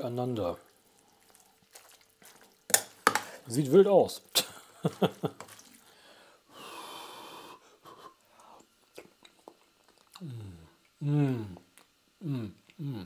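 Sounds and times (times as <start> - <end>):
person breathing in: 5.8 - 8.6
person humming mmm: 10.1 - 13.0.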